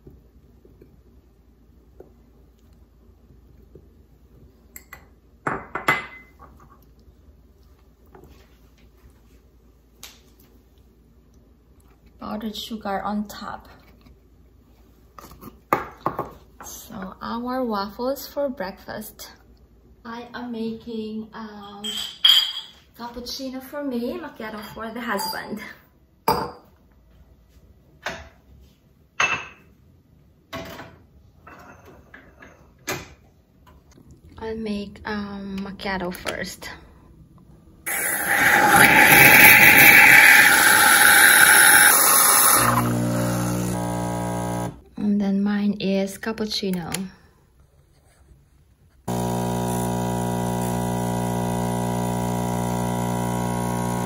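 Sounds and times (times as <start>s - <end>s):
espresso machine pump humming: 37.9s - 44.8s, 49.1s - 54.0s.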